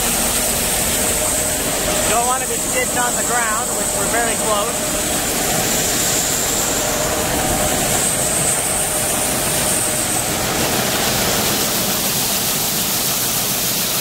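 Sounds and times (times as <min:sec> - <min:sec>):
thin high whine: 0:00.0 - 0:12.9
grain extractor running: 0:00.0 - 0:14.0.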